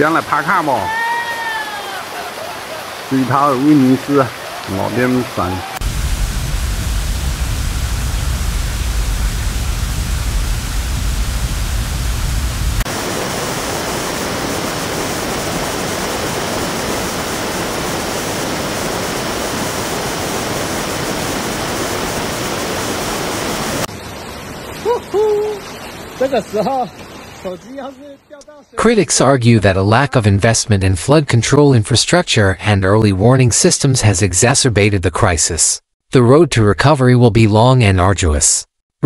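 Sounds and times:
heavy rain: 0.0s - 28.2s
rushing floodwater: 0.0s - 28.7s.

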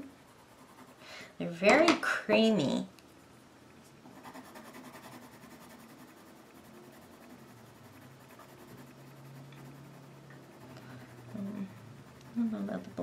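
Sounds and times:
colored pencil scratching on paper: 0.0s - 1.0s, 4.1s - 13.0s.

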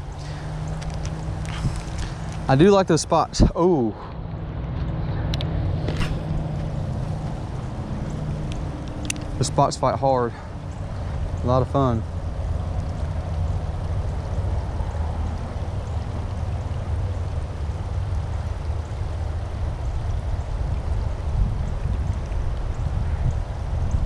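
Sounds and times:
wind on microphone: 0.0s - 2.6s, 19.3s - 24.0s.

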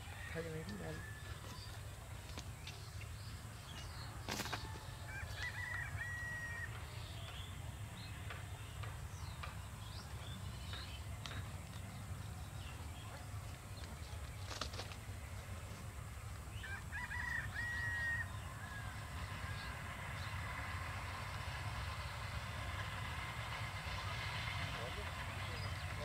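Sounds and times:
rooster crowing: 0.0s - 1.7s, 4.6s - 6.9s, 16.6s - 19.8s
low steady rumble: 4.8s - 26.0s.

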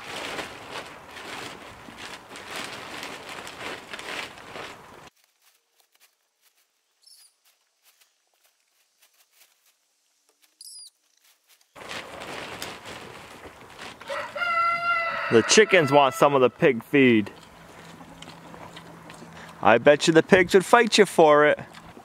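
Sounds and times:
plastic tarp rustling: 0.0s - 6.7s, 11.3s - 15.7s.

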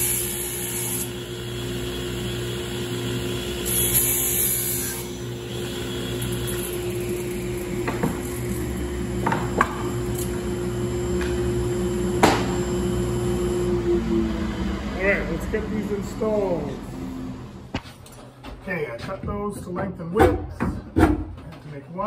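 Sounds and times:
saw blade cutting plywood: 0.0s - 10.4s
table saw humming: 0.0s - 17.8s
wood pieces knocking: 7.8s - 8.4s, 9.2s - 9.9s.

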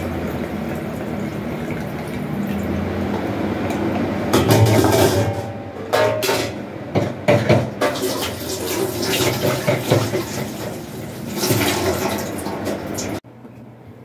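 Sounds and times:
tap running into sink: 7.0s - 13.2s.

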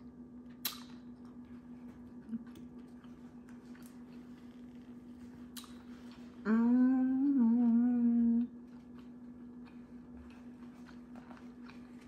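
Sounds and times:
faint chewing: 0.5s - 6.4s, 8.4s - 12.0s
woman humming while eating: 6.4s - 8.7s.

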